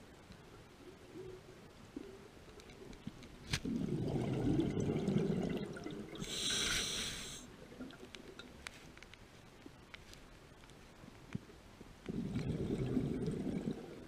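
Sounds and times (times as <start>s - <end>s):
exhaled bubbles burbling: 3.6s - 6.3s, 12.1s - 14.0s
regulator breath hiss: 6.2s - 7.5s.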